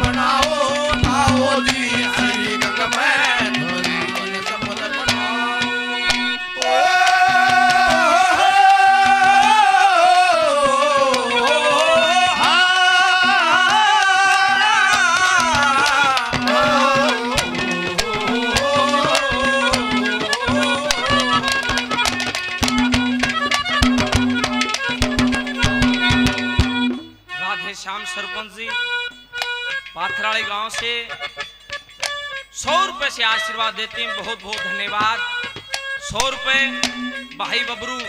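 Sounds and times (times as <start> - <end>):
fast hand-drum strokes: 0.0 - 5.5, 10.5 - 27.1, 36.1 - 38.0
wavering lead melody: 15.8 - 27.3, 36.0 - 38.0.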